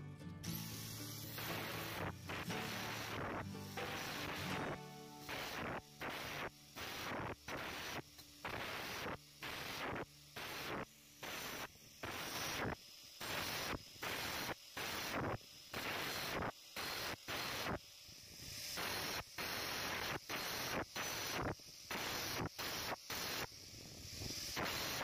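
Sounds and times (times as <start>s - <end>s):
angle grinder cutting steel: 0.5s - 15.1s, 18.7s - 25.0s.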